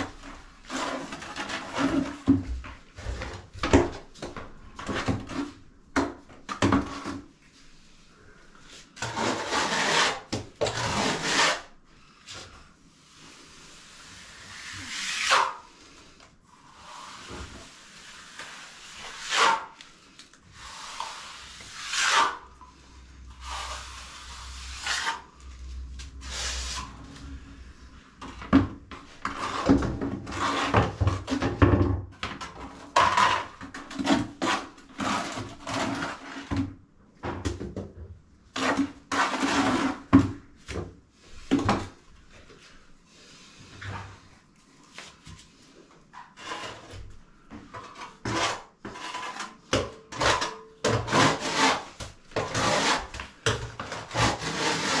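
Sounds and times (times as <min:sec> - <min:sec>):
trowel scraping cement on wall: 0:00.1 - 0:02.3, 0:09.0 - 0:11.8, 0:14.3 - 0:15.7, 0:17.0 - 0:19.8, 0:20.6 - 0:22.5, 0:23.4 - 0:25.4, 0:29.1 - 0:31.5, 0:32.6 - 0:36.6, 0:38.5 - 0:40.2, 0:46.2 - 0:47.1, 0:47.8 - 0:55.0.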